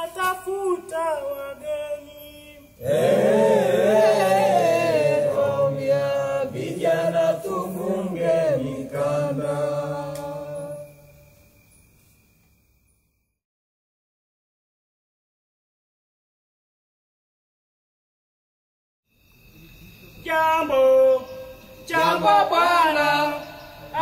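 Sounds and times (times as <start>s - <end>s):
group of voices chanting: 2.8s - 10.8s, 21.9s - 24.0s.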